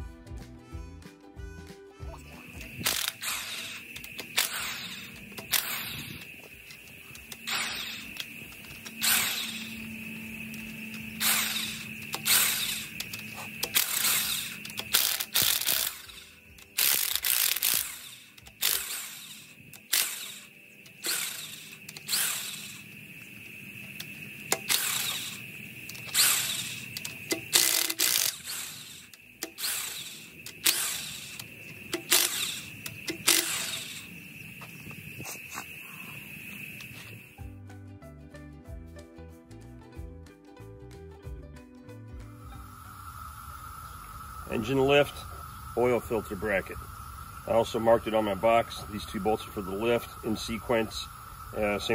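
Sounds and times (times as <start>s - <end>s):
impact wrench rattling: 2.8s - 9.8s, 10.4s - 23.4s, 24.0s - 34.1s.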